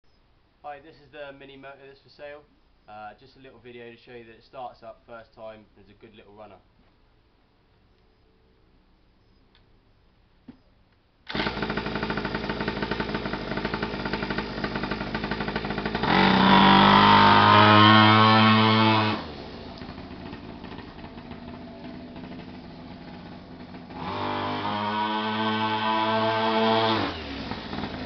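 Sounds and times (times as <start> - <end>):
pull-starting small engine: 11.3 - 28.0
small two-stroke engine running: 11.3 - 28.0.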